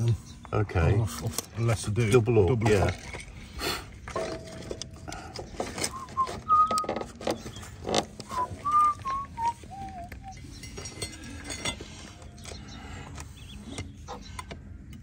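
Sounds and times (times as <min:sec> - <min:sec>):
person whistling a tune: 0:05.9 - 0:07.0, 0:08.3 - 0:10.6.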